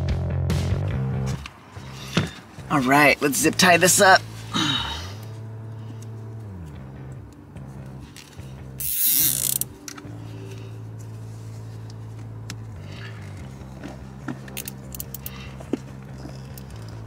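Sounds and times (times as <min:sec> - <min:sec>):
soft background music: 0:01.1 - 0:17.0
zip tie ratcheting tight: 0:08.1 - 0:10.1, 0:13.2 - 0:17.0.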